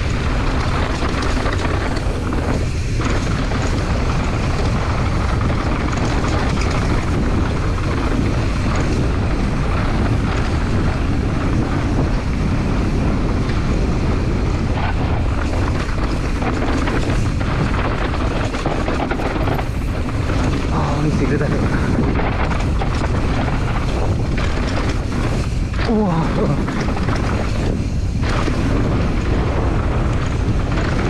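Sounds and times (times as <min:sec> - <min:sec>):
tyres rumbling over rocky dirt: 0:00.0 - 0:31.0
wind buffeting microphone: 0:00.0 - 0:31.0.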